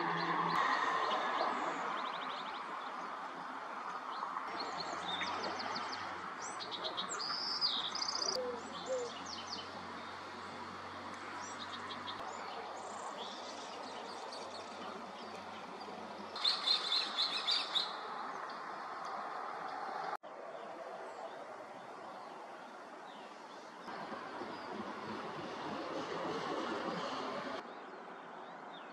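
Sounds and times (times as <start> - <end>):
birds chirping and singing: 4.5 - 10.1, 11.4 - 18.0.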